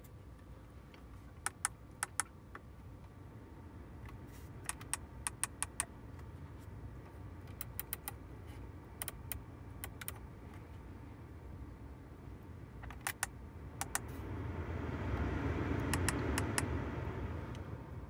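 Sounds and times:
low steady rumble: 0:00.0 - 0:18.0
toggle switches clicking: 0:01.4 - 0:02.3, 0:04.6 - 0:05.9, 0:12.8 - 0:14.1, 0:15.8 - 0:16.7.

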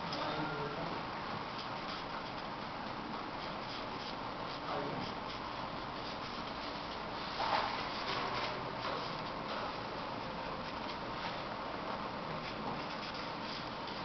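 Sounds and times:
marker scratching on paper: 0:01.6 - 0:02.5, 0:03.2 - 0:08.2, 0:12.3 - 0:14.0.

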